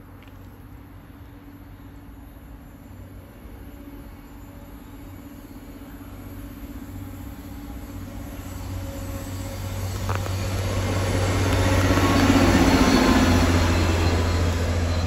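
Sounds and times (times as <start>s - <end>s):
train running noise: 0.0s - 15.0s.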